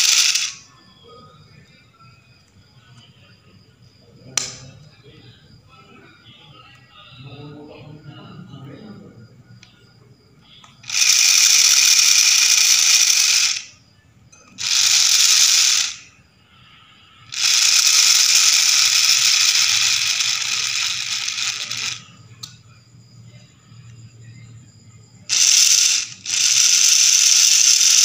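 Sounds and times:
motor gearbox whirring rattle: 0:00.0 - 0:00.6, 0:14.6 - 0:16.0, 0:17.3 - 0:22.0, 0:25.3 - 0:28.0.

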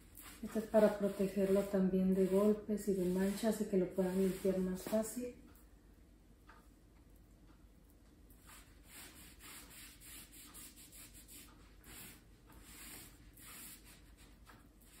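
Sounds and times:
cloth rubbing on wood: 0:00.0 - 0:05.2, 0:08.5 - 0:14.3.

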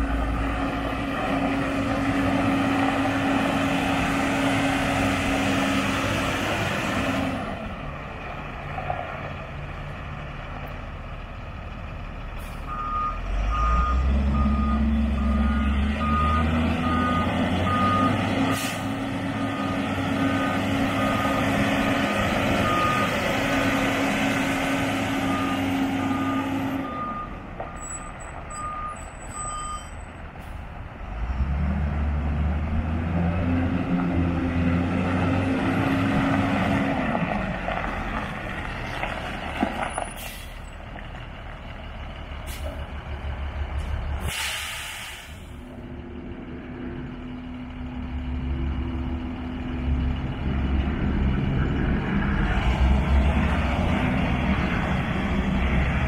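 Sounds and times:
forklift diesel engine revving: 0:00.0 - 0:07.8, 0:12.0 - 0:27.4, 0:31.0 - 0:37.6, 0:42.1 - 0:56.0
reversing alarm beeping: 0:12.6 - 0:18.6, 0:22.6 - 0:23.2, 0:25.2 - 0:30.1.

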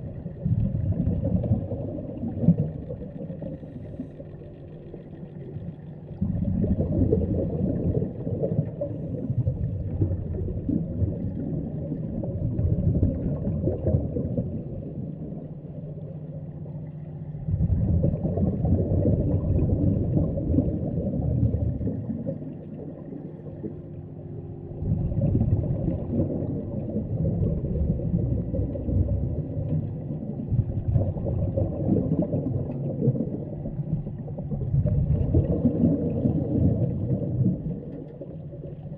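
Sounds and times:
bubbles gurgling: 0:00.0 - 0:16.6, 0:17.3 - 0:24.0, 0:24.7 - 0:38.9
faint steady hum: 0:00.0 - 0:38.9.

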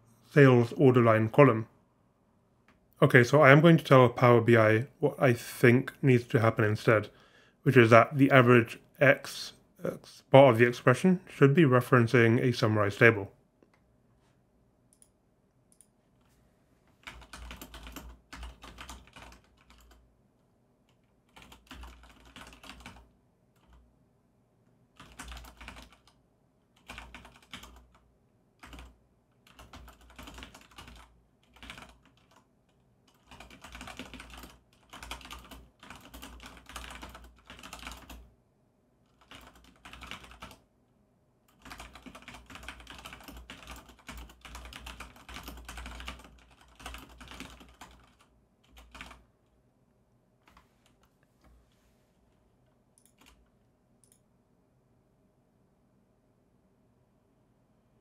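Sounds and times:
keyboard typing: 0:17.0 - 0:20.0, 0:20.9 - 0:23.8, 0:25.0 - 0:28.0, 0:28.6 - 0:38.3, 0:39.1 - 0:40.6, 0:41.5 - 0:49.2, 0:53.0 - 0:54.2.

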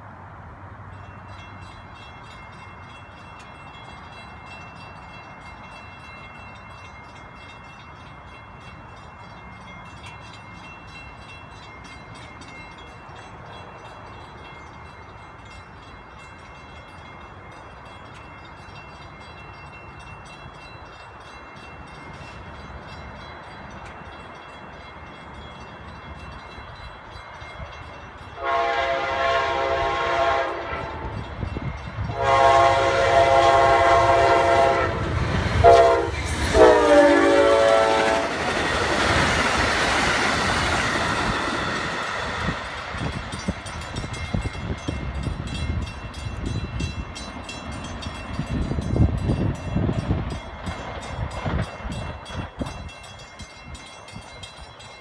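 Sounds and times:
locomotive horn blast: 0:28.4 - 0:31.2, 0:32.1 - 0:38.4.

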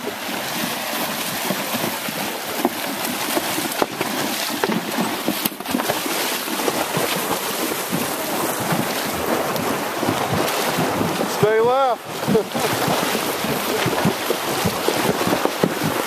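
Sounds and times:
horses splashing through water: 0:00.0 - 0:16.0
wind buffeting microphone: 0:06.5 - 0:16.0.

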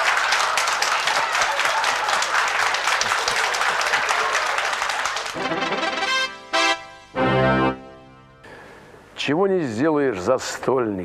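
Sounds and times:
audience applauding: 0:00.0 - 0:06.8
music: 0:05.4 - 0:08.5.

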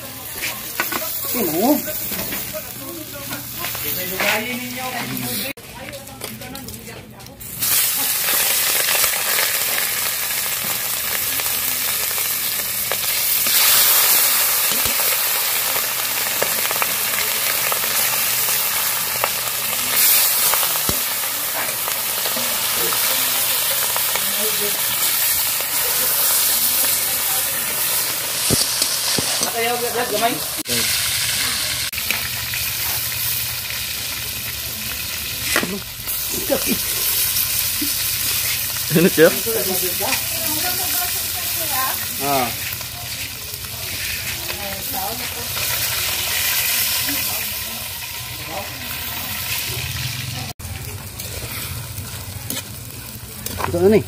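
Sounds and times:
fish sizzling in hot oil: 0:00.0 - 0:05.8, 0:07.4 - 0:54.0
metal spatula scraping wok: 0:39.5 - 0:47.4.

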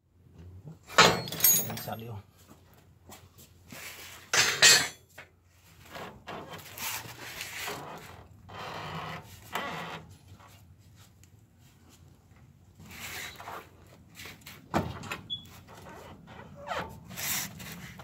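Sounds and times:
loud metal clanks: 0:01.0 - 0:02.0
metal scraping and rattling: 0:04.3 - 0:05.0.

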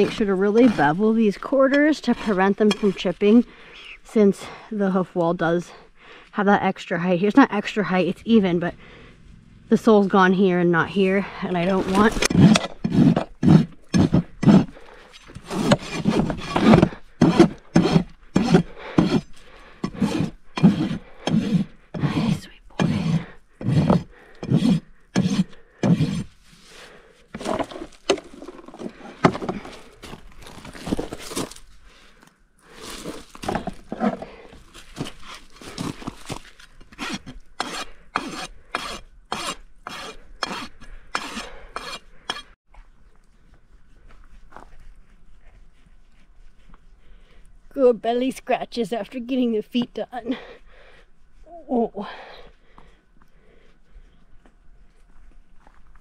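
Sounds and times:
rasp stroking hoof: 0:00.0 - 0:04.0, 0:10.9 - 0:31.7, 0:32.8 - 0:42.6, 0:43.3 - 0:47.9.

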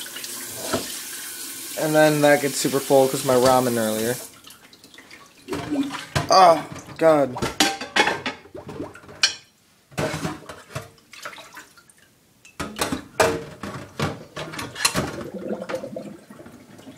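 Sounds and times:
dishes clattering: 0:05.5 - 0:10.9, 0:12.5 - 0:15.8.

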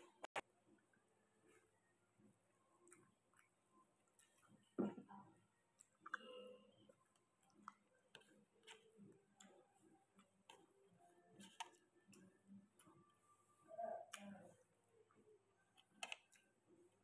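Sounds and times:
mouth clicks and smacks chewing: 0:02.7 - 0:04.7, 0:05.7 - 0:09.6.

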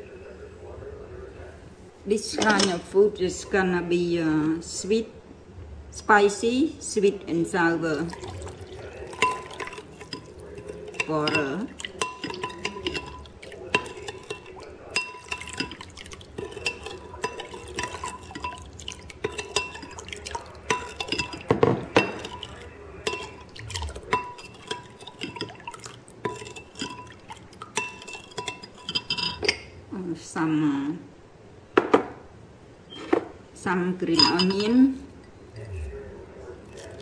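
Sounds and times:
metal spoon clinking on glass bowl: 0:02.4 - 0:02.8, 0:08.1 - 0:29.7, 0:34.1 - 0:35.4.

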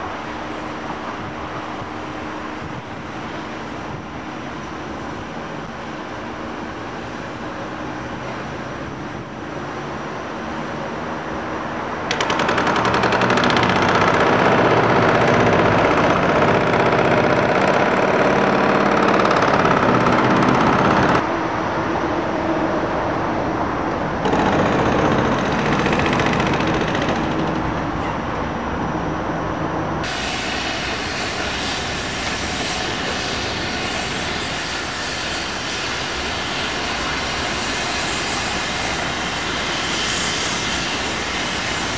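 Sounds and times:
tracked excavator running: 0:12.1 - 0:21.2, 0:24.2 - 0:28.0.

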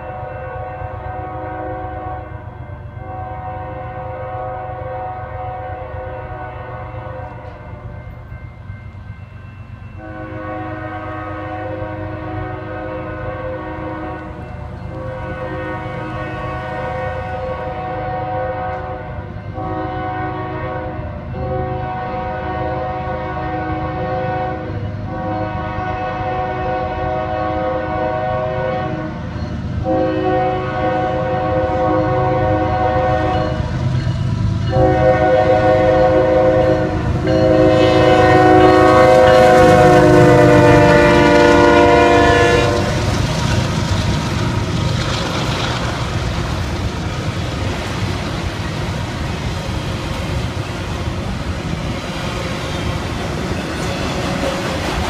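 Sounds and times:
locomotive air horn blasts: 0:00.0 - 0:07.7, 0:10.0 - 0:29.2, 0:29.8 - 0:33.7, 0:34.6 - 0:43.2
freight cars rumbling and clattering: 0:42.7 - 0:55.0.

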